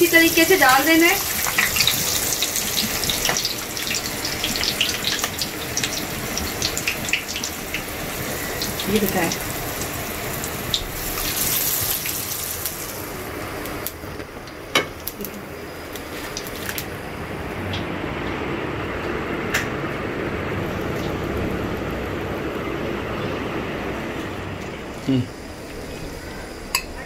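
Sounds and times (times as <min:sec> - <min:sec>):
oil sizzling: 0:00.0 - 0:18.6.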